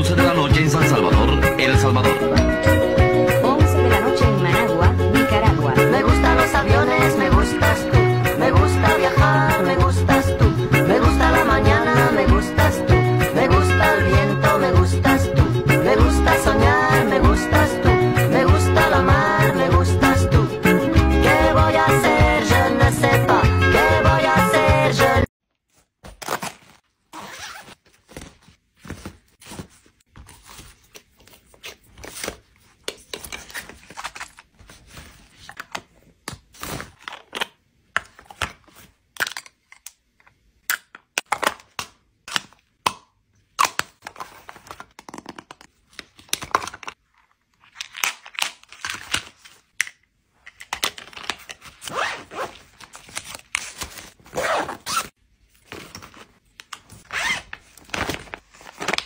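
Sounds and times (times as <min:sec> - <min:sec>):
zipper: 0:26.2 - 0:27.8, 0:51.8 - 0:52.6, 0:54.3 - 0:55.1, 0:57.1 - 0:57.5.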